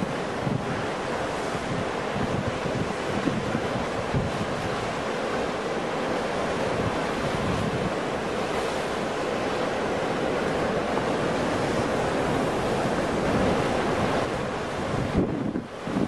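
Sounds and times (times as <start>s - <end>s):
ocean waves breaking: 0.0s - 16.0s.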